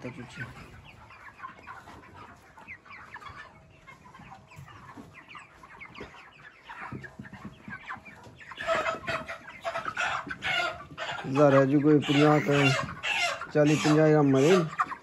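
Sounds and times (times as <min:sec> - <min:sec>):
chickens peeping and clucking: 0:00.0 - 0:15.0.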